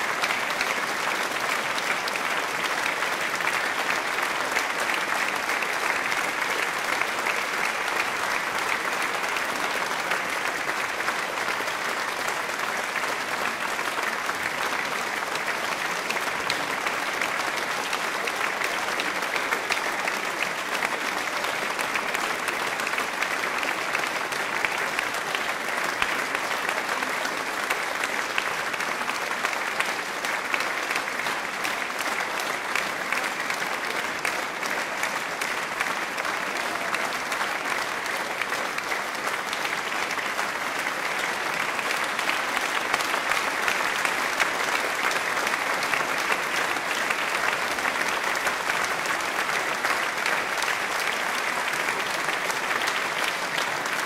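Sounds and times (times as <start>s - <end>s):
crowd applause: 0.0s - 54.0s.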